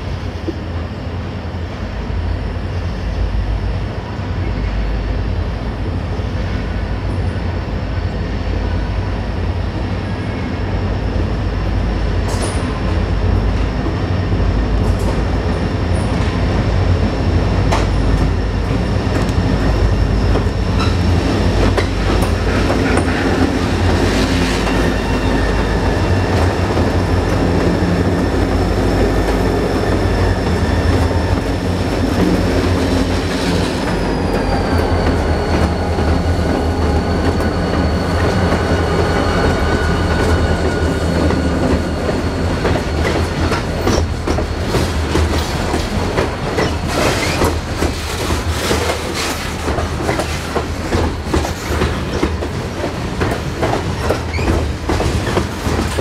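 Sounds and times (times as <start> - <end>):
diesel locomotives rumbling: 0.0 - 56.0
train wheels clicking over rail joints: 17.6 - 56.0.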